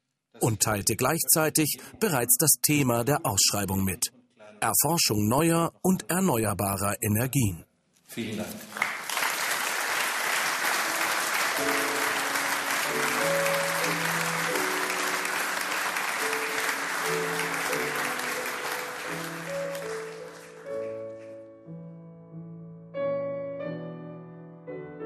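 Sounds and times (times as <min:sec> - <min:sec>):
music: 0:00.4 - 0:04.3, 0:08.3 - 0:25.0
audience applauding: 0:08.5 - 0:21.3.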